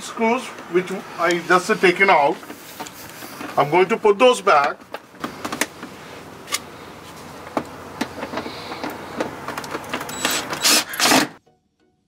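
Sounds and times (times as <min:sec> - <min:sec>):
impact driver driving screw: 0:10.1 - 0:11.4.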